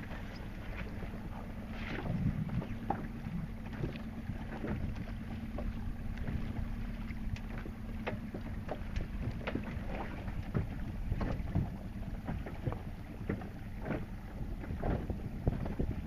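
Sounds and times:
steady low hum: 0:00.0 - 0:16.0
water splashing against boat hull: 0:00.0 - 0:16.0
wind buffeting microphone: 0:00.0 - 0:16.0.

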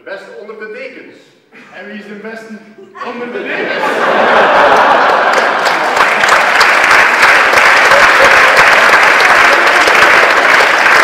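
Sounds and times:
audience applauding: 0:03.8 - 0:11.0.

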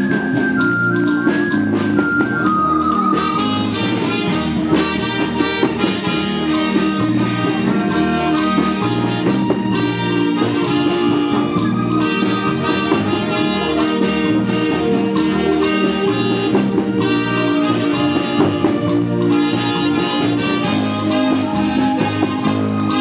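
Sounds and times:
instrumental music with steady beat: 0:00.0 - 0:23.0.

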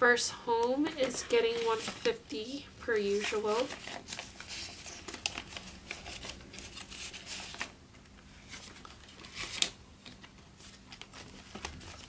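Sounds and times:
paper banknotes rustling: 0:01.0 - 0:02.2, 0:03.0 - 0:12.0.

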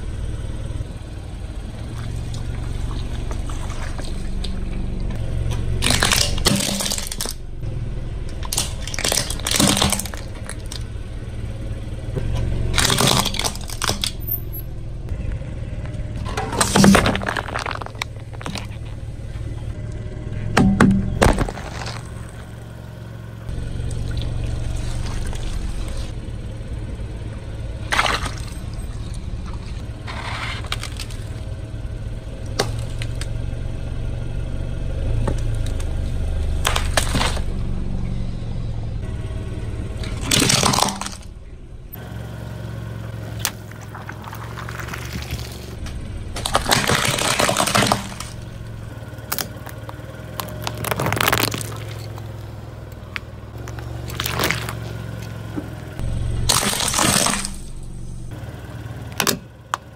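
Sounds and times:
cracks and pops: 0:05.8 - 0:07.4, 0:15.8 - 0:19.0, 0:20.6 - 0:22.6, 0:40.1 - 0:41.3, 0:43.4 - 0:55.8, 0:56.5 - 0:57.6
tyre crushing plastic objects: 0:05.8 - 0:07.4, 0:08.3 - 0:10.8, 0:12.8 - 0:14.2, 0:16.2 - 0:19.0, 0:20.6 - 0:22.5, 0:30.1 - 0:31.4, 0:36.6 - 0:37.5, 0:40.0 - 0:41.3, 0:43.4 - 0:55.3, 0:56.5 - 0:57.7.

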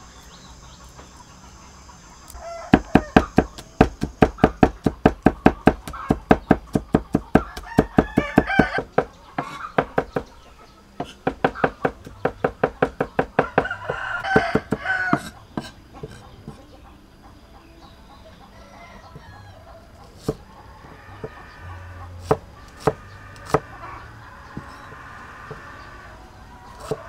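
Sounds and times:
chickens clucking and crowing: 0:00.0 - 0:27.0
cleaver chopping on wooden block: 0:02.7 - 0:10.3, 0:11.0 - 0:16.6, 0:22.2 - 0:23.7, 0:26.8 - 0:27.0.

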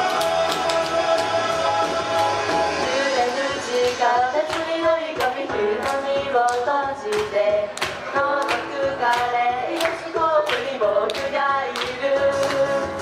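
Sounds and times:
backing track with steady beat: 0:00.0 - 0:13.0
women singing pop song: 0:02.7 - 0:13.0.

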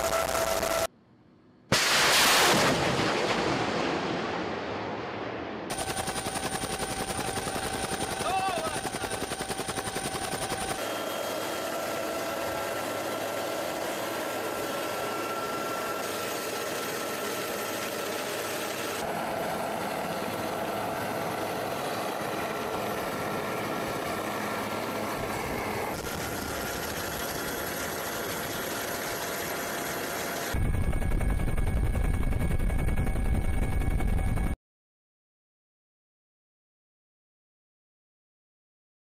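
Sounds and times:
aircraft engine: 0:05.7 - 0:34.6.

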